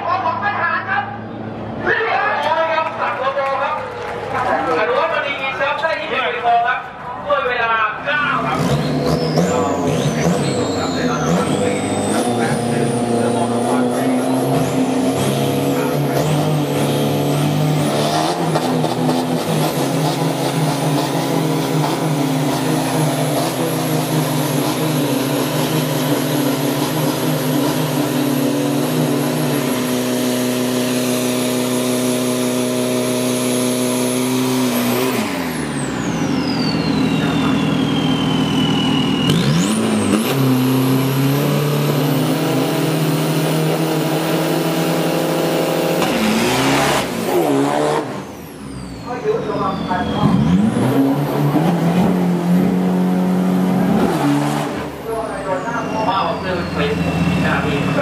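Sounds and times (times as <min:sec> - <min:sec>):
pickup engines revving high: 0:00.0 - 0:58.0
high whine: 0:09.5 - 0:41.3.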